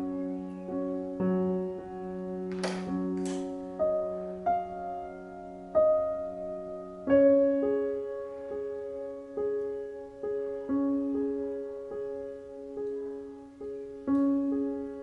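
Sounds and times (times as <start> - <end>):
slow solo piano: 0.0 - 15.0.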